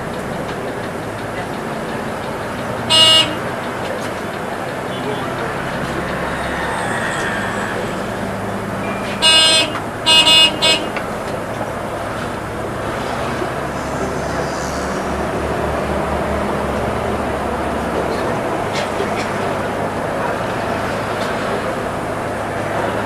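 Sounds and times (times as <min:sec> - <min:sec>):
bus engine running: 0:00.0 - 0:23.0
vehicle horn blasts: 0:02.8 - 0:03.8, 0:08.8 - 0:11.2.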